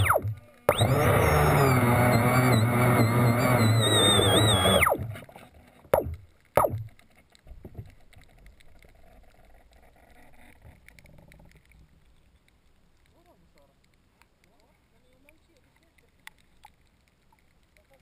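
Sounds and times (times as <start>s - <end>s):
boat motor whining underwater: 0.0s - 5.4s, 6.0s - 6.9s
faint underwater noise: 0.0s - 18.0s
sharp knocks: 6.0s - 7.0s.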